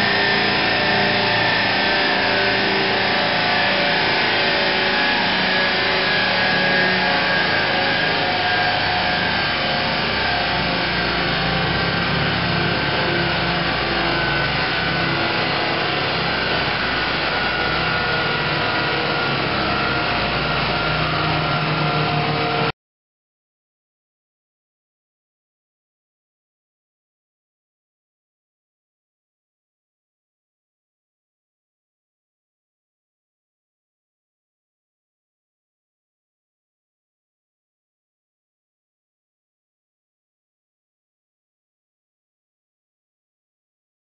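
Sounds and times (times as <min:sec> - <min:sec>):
car engine at high revs: 0:00.0 - 0:22.7
tyres whirring on rollers: 0:00.0 - 0:22.7.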